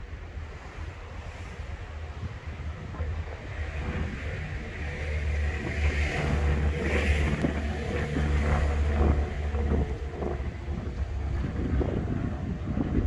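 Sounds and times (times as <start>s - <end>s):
wind buffeting microphone: 0.0s - 13.0s
vehicle driving past: 3.8s - 12.6s.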